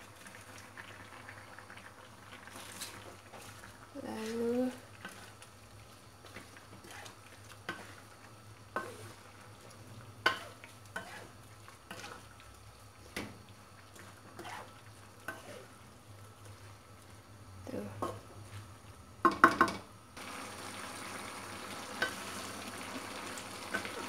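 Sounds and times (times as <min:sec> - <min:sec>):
frying sizzle: 0:00.0 - 0:24.0
spatula scraping wok: 0:02.5 - 0:05.5, 0:06.2 - 0:08.1, 0:08.8 - 0:09.3, 0:10.2 - 0:12.3, 0:13.9 - 0:16.8.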